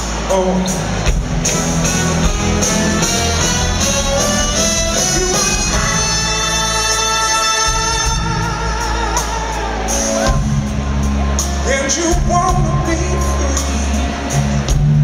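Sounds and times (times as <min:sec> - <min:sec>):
bass and drums: 0:00.0 - 0:15.0
horn section holding a chord: 0:02.2 - 0:10.2
man singing: 0:05.8 - 0:10.4, 0:11.6 - 0:14.6.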